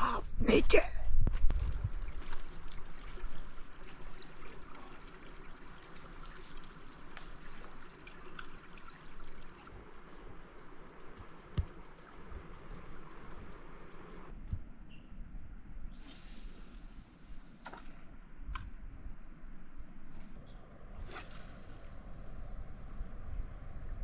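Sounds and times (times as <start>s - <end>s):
river water trickling: 1.5s - 14.3s
high insect whine: 1.5s - 20.4s
rapid insect chirping: 1.5s - 20.4s.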